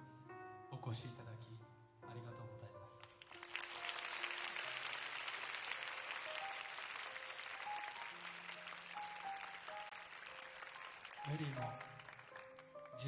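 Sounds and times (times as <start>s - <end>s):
audience applauding: 3.0s - 13.0s.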